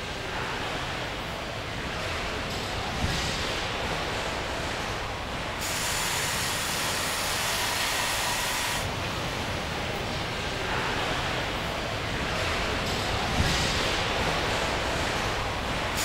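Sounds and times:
assembly hall noise: 0.0s - 16.0s
compressed air hissing: 5.6s - 8.9s.

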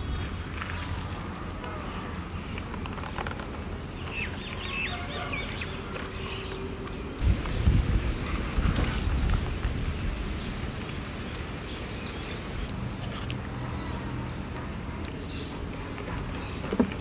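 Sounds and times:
pulsing insect drone: 0.0s - 17.0s.

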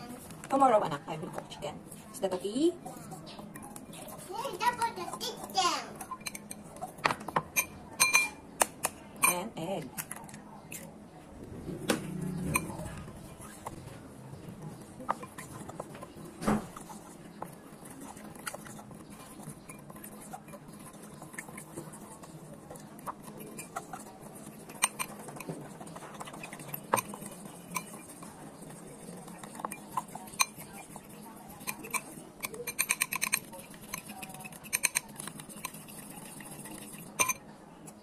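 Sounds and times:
fork scraping glass bowl: 2.8s - 8.4s, 12.2s - 13.8s, 15.0s - 37.4s.

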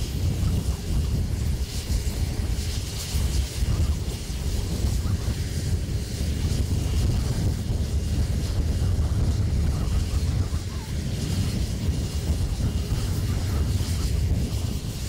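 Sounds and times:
helicopter engines rumbling: 0.0s - 15.0s
wind buffeting microphone: 0.0s - 15.0s.

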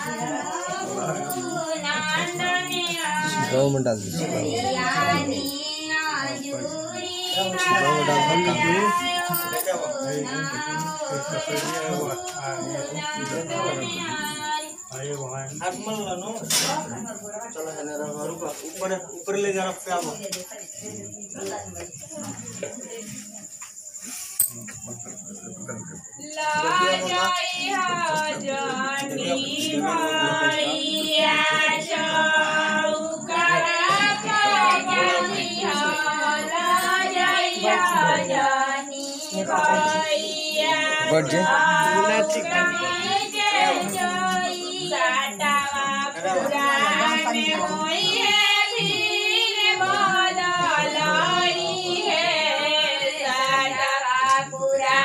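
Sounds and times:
women singing together: 0.0s - 17.6s, 26.1s - 55.0s.

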